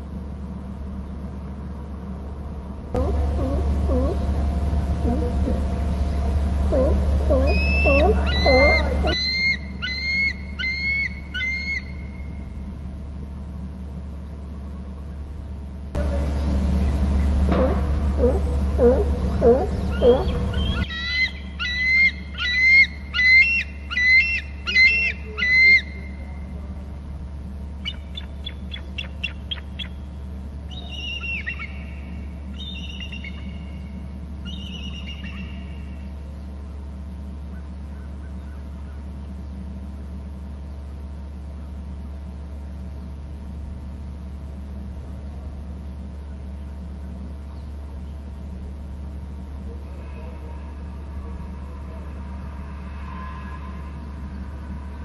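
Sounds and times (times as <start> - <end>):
low rumble: 0.0 - 9.9, 48.8 - 55.0
eagle piping calls: 3.0 - 4.2, 5.0 - 5.7, 6.7 - 12.2, 17.6 - 26.2, 27.8 - 30.1, 30.7 - 33.8, 34.4 - 36.0.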